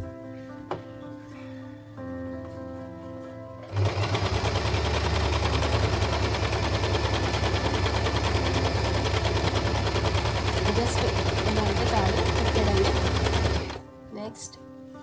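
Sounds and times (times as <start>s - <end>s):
electric sewing machine running: 3.6s - 13.8s.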